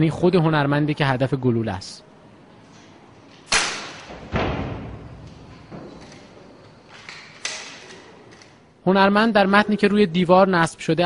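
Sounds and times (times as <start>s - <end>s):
air gun shots echoing: 3.4s - 5.9s.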